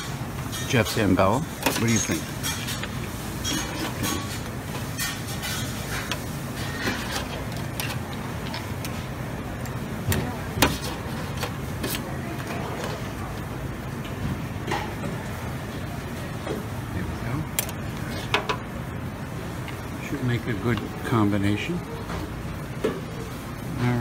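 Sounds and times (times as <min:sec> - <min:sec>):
utensils and dishes clinking: 0:00.0 - 0:18.8
background murmur of voices: 0:09.6 - 0:24.0.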